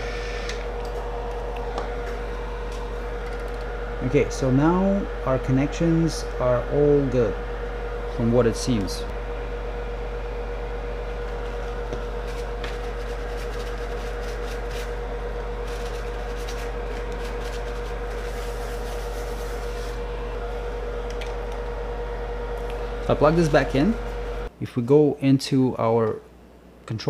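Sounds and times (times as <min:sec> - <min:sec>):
electrical hum: 0:00.0 - 0:27.0.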